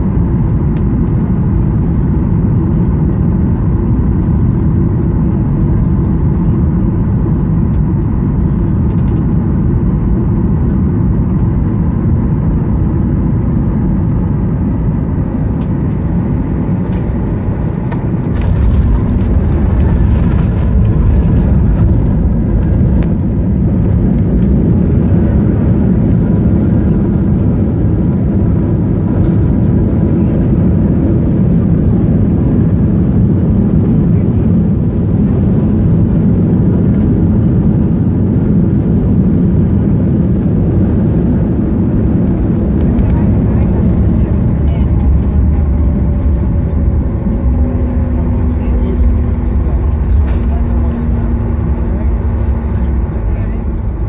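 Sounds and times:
aircraft cabin engine rumble: 0:00.0 - 0:54.0
heavy landing rollout rumble: 0:00.0 - 0:54.0.

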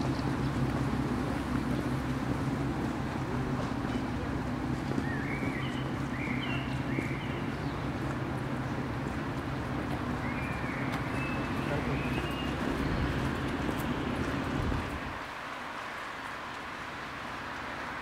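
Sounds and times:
bird chirps: 0:05.0 - 0:07.8, 0:10.2 - 0:13.1.

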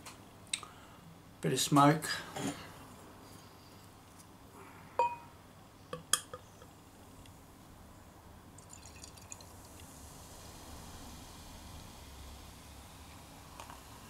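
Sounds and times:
glass knocking on glass: 0:05.0 - 0:05.3
ringing glass clink: 0:05.0 - 0:05.3
beer head fizzing: 0:08.5 - 0:14.0
beer pouring into glass: 0:08.6 - 0:11.3.

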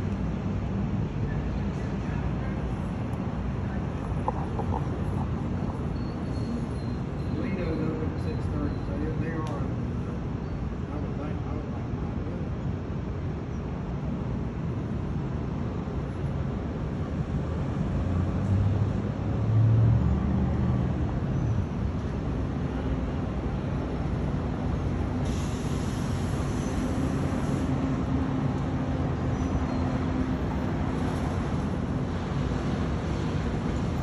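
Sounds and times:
ship machinery rumble and hum: 0:00.0 - 0:13.4.

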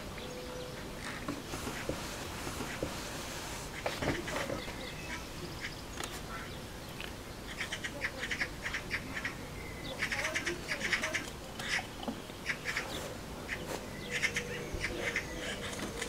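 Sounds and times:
magpies chattering: 0:03.7 - 0:16.0.

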